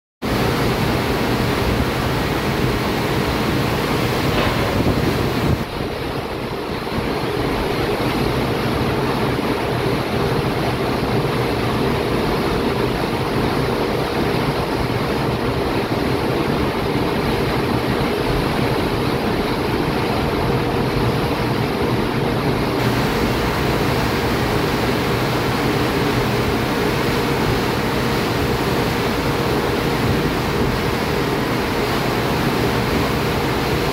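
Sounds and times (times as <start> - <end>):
ship's wake churning: 0.2 - 33.9
wind on microphone: 1.6 - 11.2, 14.2 - 33.9.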